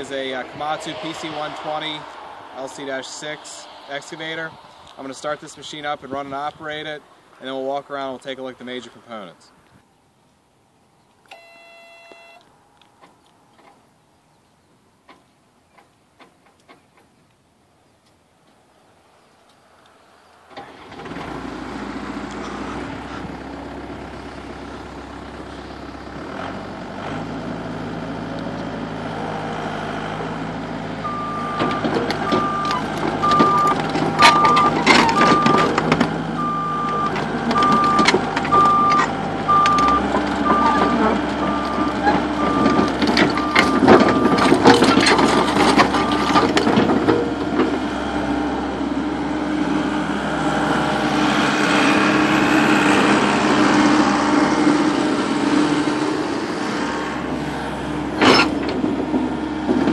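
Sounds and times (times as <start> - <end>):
excavator diesel engine revving: 0.0 - 6.5, 20.5 - 59.9
travel alarm beeping: 11.3 - 12.4, 31.0 - 35.7, 36.4 - 44.5.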